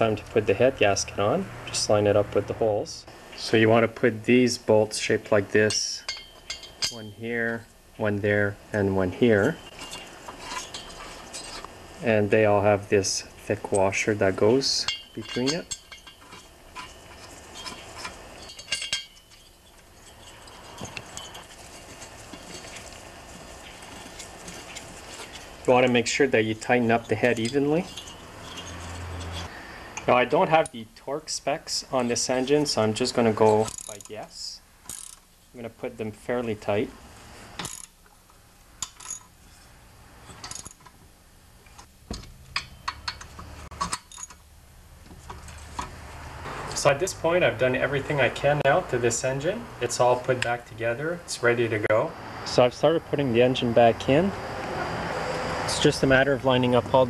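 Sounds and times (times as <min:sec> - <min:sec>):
small metal clinks: 0:05.7 - 0:07.2, 0:09.6 - 0:11.6, 0:14.8 - 0:26.0, 0:26.6 - 0:29.5, 0:38.8 - 0:40.9, 0:42.4 - 0:44.5.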